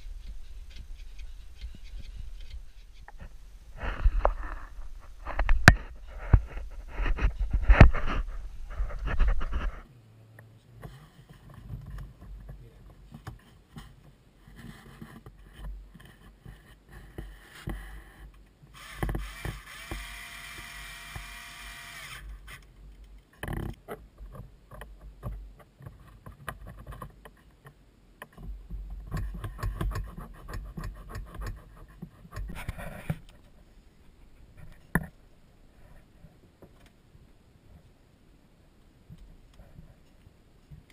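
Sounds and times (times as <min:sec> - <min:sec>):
cordless drill spinning: 0:18.7 - 0:22.3.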